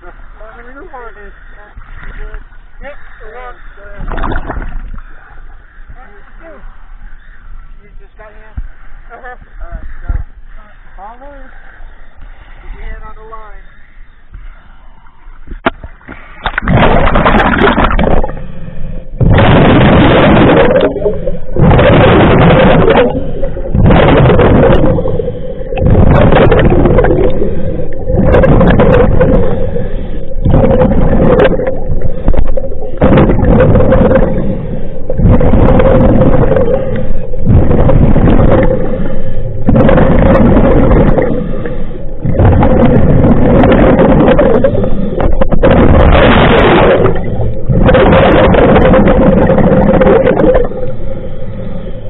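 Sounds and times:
faint steady hum: 0.0 - 52.0
exhaled bubbles: 3.0 - 6.0, 15.5 - 52.0
scuba regulator breathing: 18.2 - 19.2, 22.9 - 45.8, 50.0 - 52.0.

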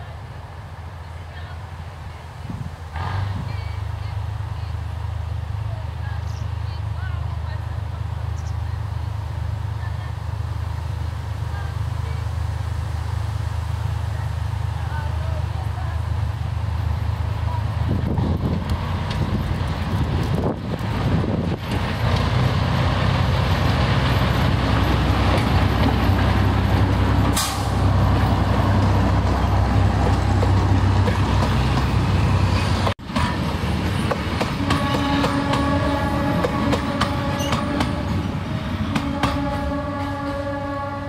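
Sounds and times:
train rumbling past: 0.0 - 41.0
train horn: 34.5 - 41.0.

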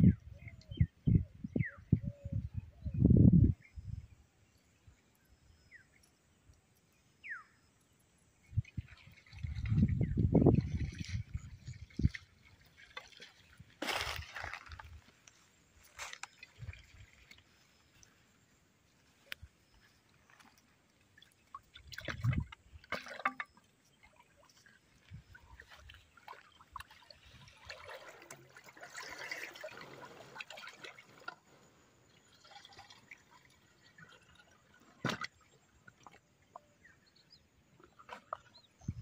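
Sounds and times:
low thumps and splashes: 8.5 - 15.1, 21.2 - 23.7, 32.4 - 36.6
water gurgling into plastic pots: 8.5 - 15.1, 21.5 - 23.6, 25.2 - 36.8.

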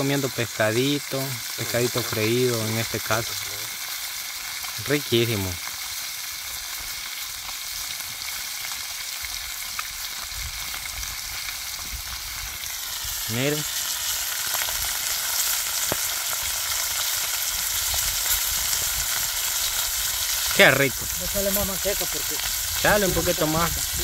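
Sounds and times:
fish sizzling in a pan: 0.0 - 24.0.

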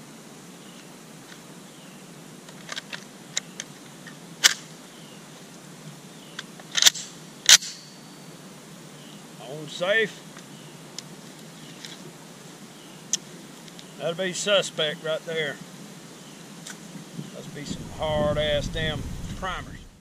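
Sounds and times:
rifle being loaded clicks: 6.4 - 7.8.

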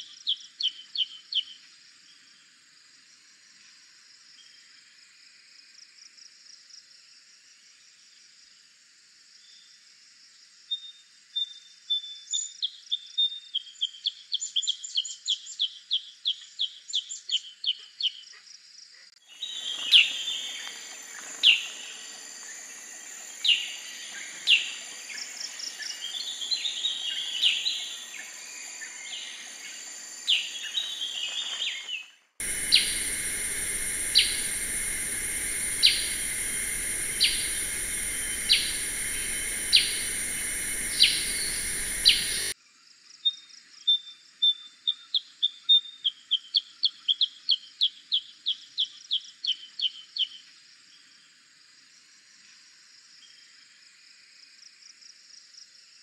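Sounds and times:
loud falling bird calls: 19.3 - 42.5
high background hiss: 19.3 - 42.6
bird calling sharp notes: 32.4 - 42.5.

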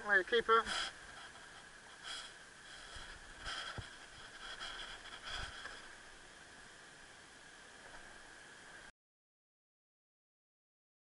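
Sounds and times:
soft handling rustles: 0.7 - 6.1
breath-like hisses: 2.0 - 5.9.

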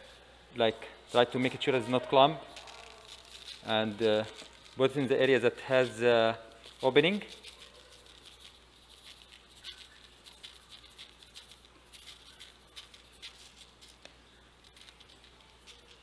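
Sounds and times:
seeds pattering onto mesh: 2.5 - 4.9, 6.5 - 16.0.

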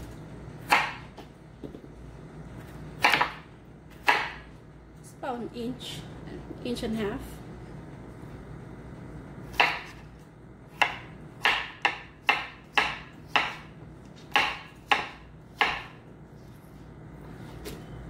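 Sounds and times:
knife chopping on wooden board: 0.6 - 1.8, 3.0 - 4.5, 9.5 - 10.1, 10.7 - 16.0.

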